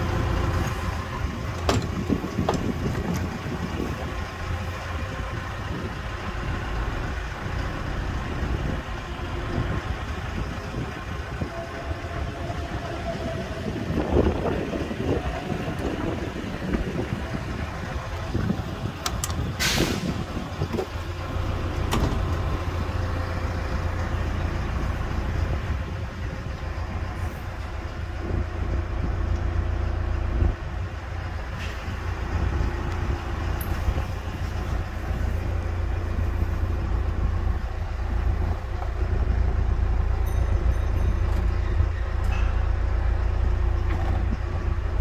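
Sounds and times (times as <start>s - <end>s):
heavy machinery engine rumbling: 0.0s - 45.0s
short sharp hiss: 19.6s - 20.2s.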